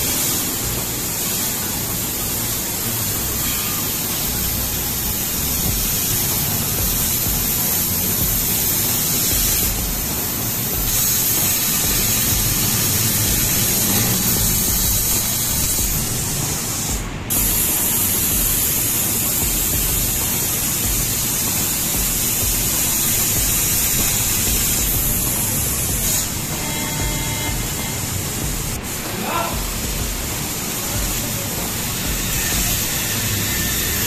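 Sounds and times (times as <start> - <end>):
laser cutter gas hissing: 0.0 - 34.0.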